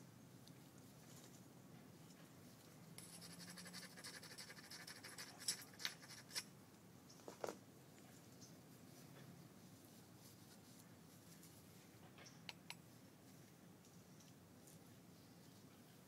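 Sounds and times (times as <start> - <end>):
scratchy scraping on stone: 3.0 - 6.5.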